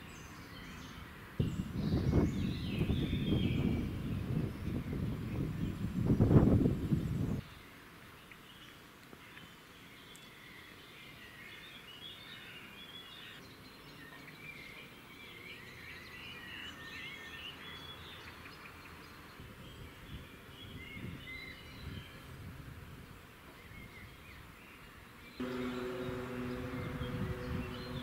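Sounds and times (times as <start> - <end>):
small birds chirping and singing: 0.0 - 22.3, 23.5 - 28.0
low outdoor background rumble: 25.4 - 28.0.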